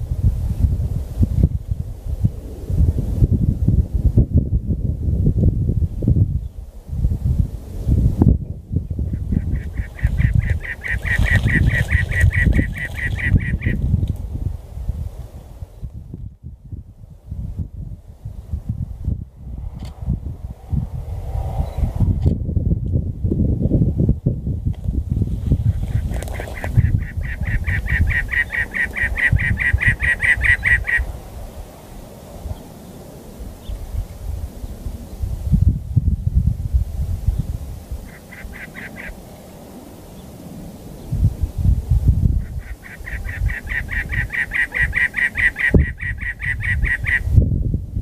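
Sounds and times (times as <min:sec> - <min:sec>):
wind rumble on microphone: 0:00.0 - 0:48.0
wren singing harsh chugging song: 0:09.1 - 0:13.8, 0:26.3 - 0:31.1, 0:42.4 - 0:47.2.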